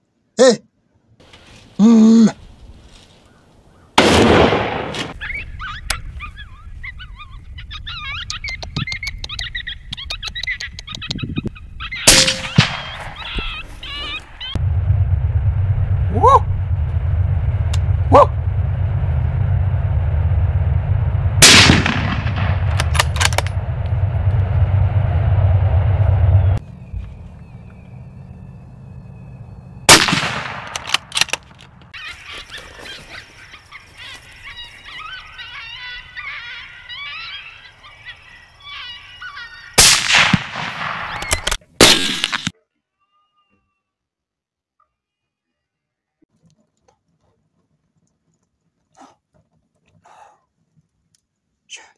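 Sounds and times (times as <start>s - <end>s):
rifle shot: 4.0s - 5.2s, 12.1s - 13.3s, 17.0s - 25.2s, 29.9s - 31.5s, 39.8s - 42.5s
canine yips and howls: 5.1s - 8.4s, 32.0s - 39.8s
sharp clicks: 8.2s - 11.2s, 21.8s - 24.0s, 30.1s - 31.9s
steady low hum: 14.6s - 30.7s.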